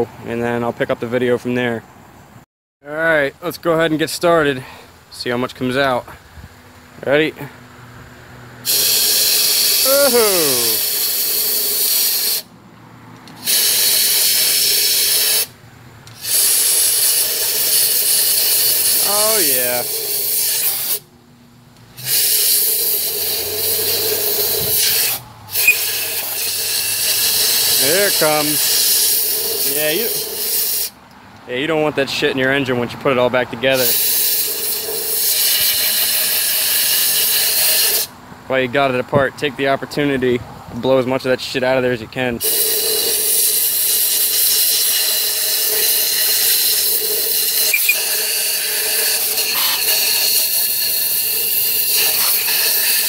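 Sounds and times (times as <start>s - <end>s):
air blow gun hissing: 8.6s - 12.5s, 13.3s - 21.1s, 21.9s - 31.0s, 33.8s - 38.1s, 42.4s - 53.0s.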